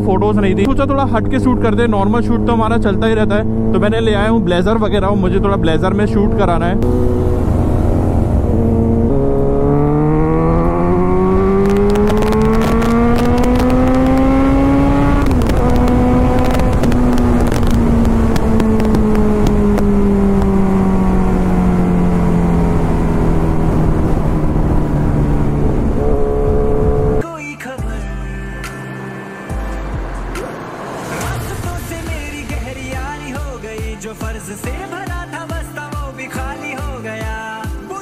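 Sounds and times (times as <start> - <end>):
motorcycle engine revving: 0.0 - 27.2
wind buffeting microphone: 10.3 - 27.2.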